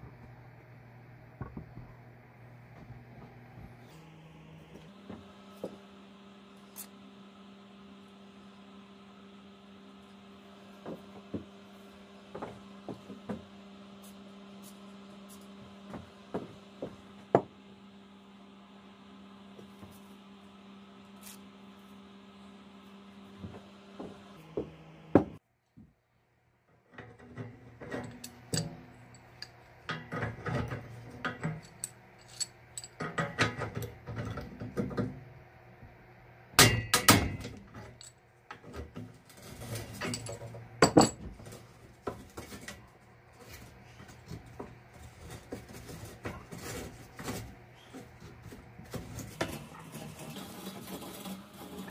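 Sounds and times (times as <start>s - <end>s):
steady electrical hum: 0.0s - 51.9s
hand tools knocking and clinking: 40.0s - 41.4s.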